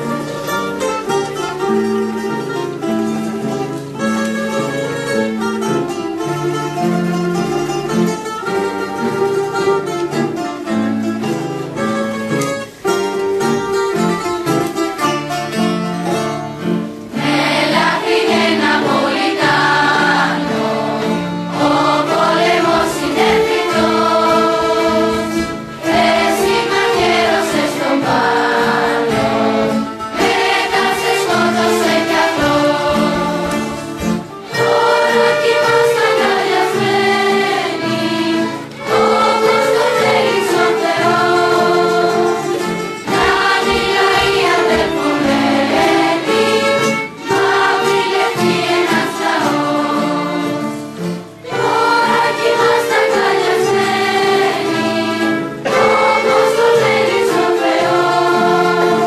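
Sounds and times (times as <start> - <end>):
plucked strings and accordion: 0.0 - 59.0
choir of teenage voices singing: 17.1 - 59.0.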